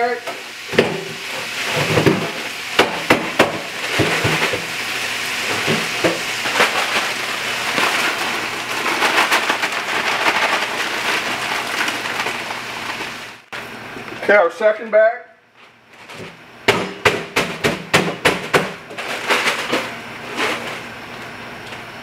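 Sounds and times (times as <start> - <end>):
food sizzling in hot fat: 0.0 - 13.5.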